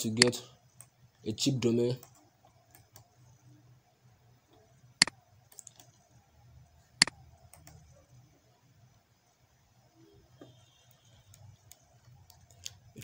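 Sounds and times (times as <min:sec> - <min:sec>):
faint low hum: 0:00.0 - 0:13.0
computer mouse clicks: 0:02.0 - 0:03.1, 0:04.5 - 0:06.0, 0:07.0 - 0:07.9, 0:10.9 - 0:12.8.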